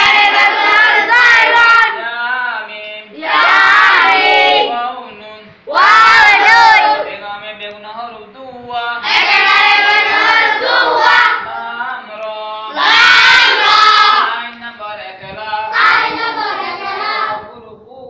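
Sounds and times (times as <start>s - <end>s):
children chanting in unison: 0.0s - 2.0s, 3.2s - 4.8s, 5.7s - 7.1s, 9.0s - 11.8s, 12.7s - 14.4s, 15.7s - 17.5s.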